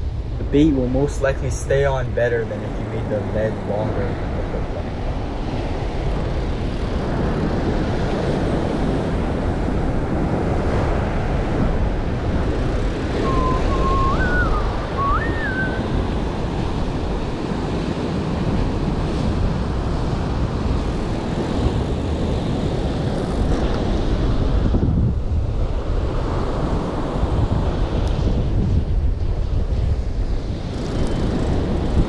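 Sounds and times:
wind buffeting microphone: 0:00.0 - 0:32.0
whistled phrase: 0:13.2 - 0:15.9.

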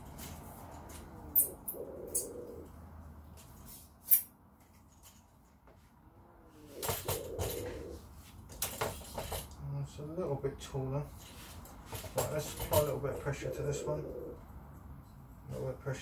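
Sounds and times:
tripod knocking and rustling: 0:06.9 - 0:09.6, 0:11.2 - 0:13.0.

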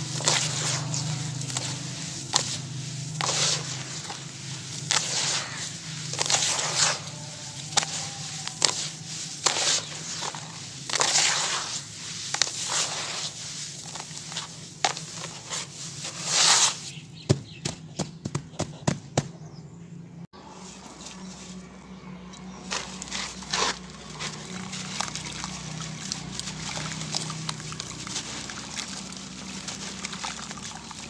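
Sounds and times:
grit pouring into basin: 0:00.0 - 0:16.9, 0:22.8 - 0:31.0
crumbles crunching: 0:00.0 - 0:18.4, 0:20.7 - 0:31.0.

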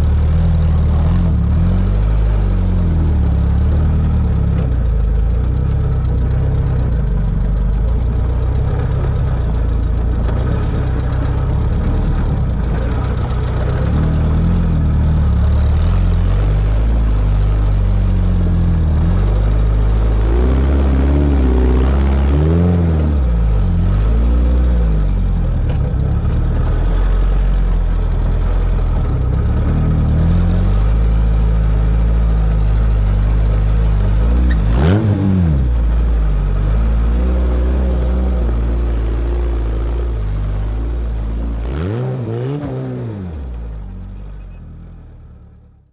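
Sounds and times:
car engine revving under load: 0:00.0 - 0:45.9.

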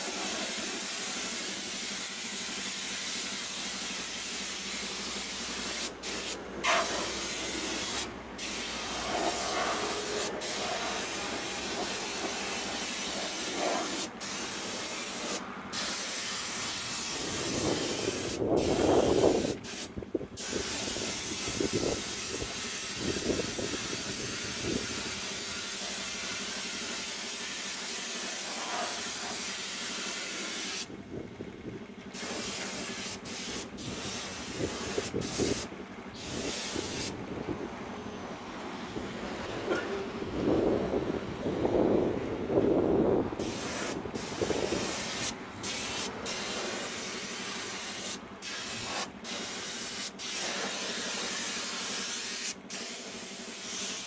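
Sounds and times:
paint spray gun hissing: 0:00.0 - 0:30.9, 0:32.1 - 0:37.2, 0:43.4 - 0:54.0.

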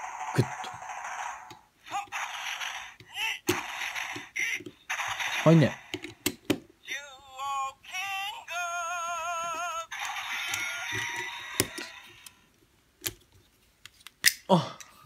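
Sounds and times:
plastic parts clicking together: 0:10.4 - 0:12.4.

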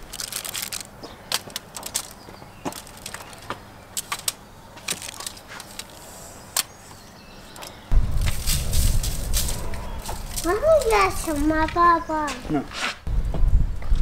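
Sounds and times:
aluminium foil crinkling: 0:00.0 - 0:06.0, 0:08.2 - 0:11.6.

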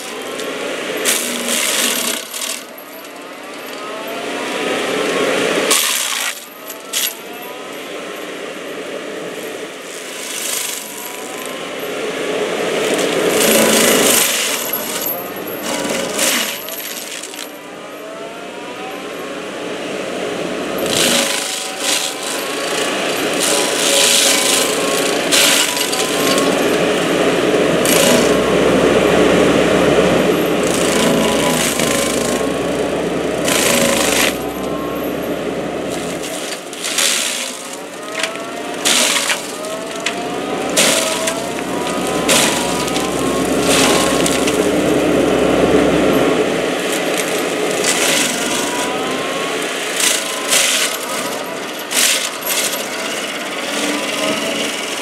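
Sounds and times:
wood chips striking: 0:00.0 - 0:03.9, 0:05.6 - 0:07.2, 0:12.8 - 0:17.5, 0:20.8 - 0:55.0
stump grinder grinding wood: 0:00.0 - 0:55.0
short rising whines: 0:17.8 - 0:51.8.

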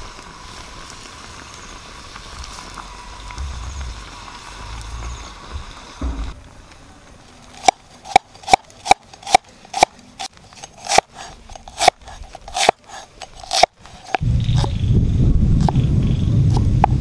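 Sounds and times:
low rumbling noise: 0:00.0 - 0:07.5, 0:14.2 - 0:17.0.

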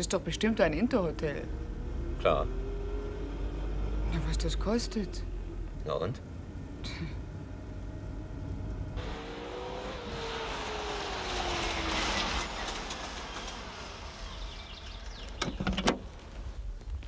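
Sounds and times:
two-stroke car engine slowing: 0:09.0 - 0:16.2.

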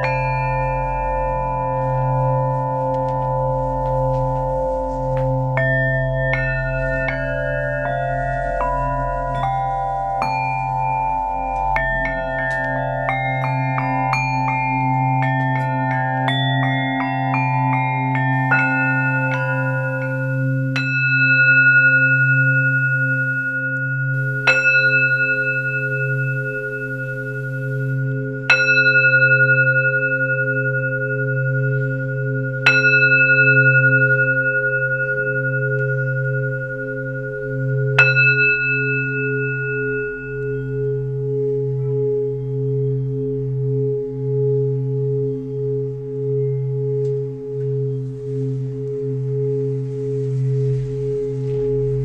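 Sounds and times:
low drone: 0:00.0 - 0:52.0
singing bowl ringing: 0:00.0 - 0:52.0.

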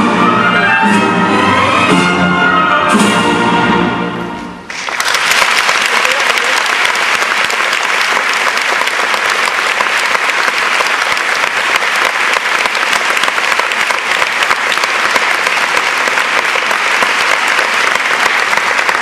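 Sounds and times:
audience applauding: 0:04.7 - 0:19.0.

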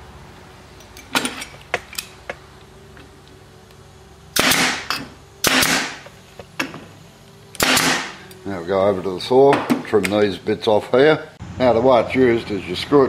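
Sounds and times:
staple gun firing: 0:04.4 - 0:06.0, 0:07.6 - 0:08.2.

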